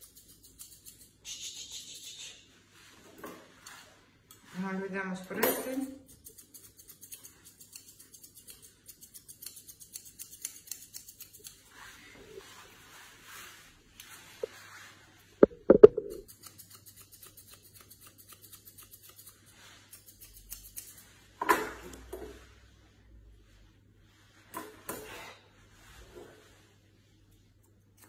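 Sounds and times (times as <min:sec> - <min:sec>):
grooming scissors snipping hair: 0:00.0 - 0:02.1, 0:05.3 - 0:11.8, 0:15.7 - 0:21.1.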